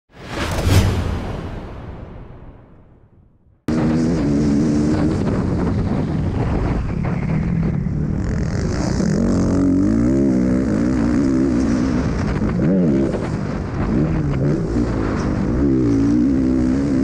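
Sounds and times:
motocross bike engine revving: 3.7 - 5.6, 8.2 - 17.0.

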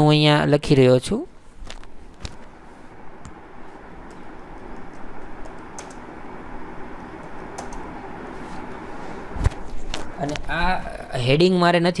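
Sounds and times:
steady background hiss: 0.0 - 12.0
keyboard keystrokes clicking: 7.6 - 7.8.

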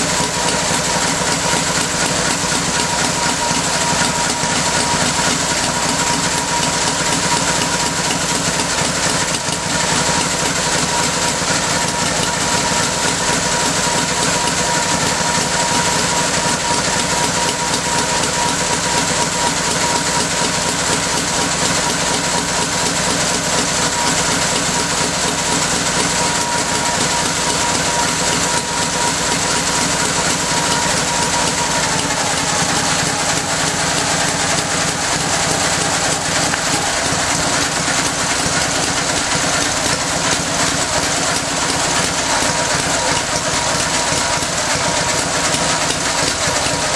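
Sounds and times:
motorcycle engine running: 0.0 - 46.9.

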